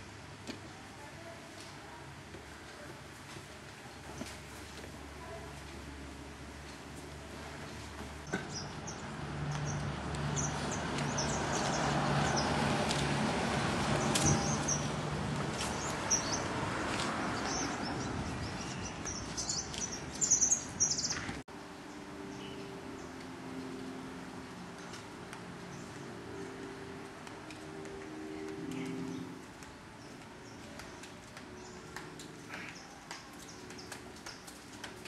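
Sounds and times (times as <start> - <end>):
outdoor background noise: 0.0 - 35.0
birds chirping: 8.2 - 12.8, 13.8 - 34.7.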